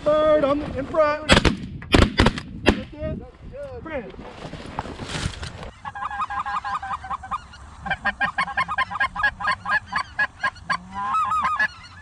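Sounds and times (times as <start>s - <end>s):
goose honking: 5.7s - 12.0s.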